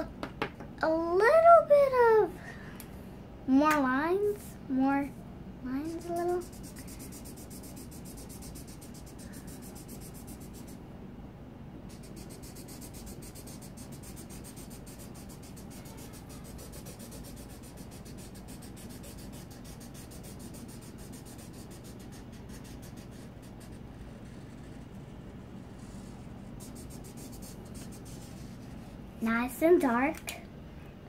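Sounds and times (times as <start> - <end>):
marker rubbing on paper: 5.7 - 10.8, 11.9 - 25.1, 25.8 - 28.8.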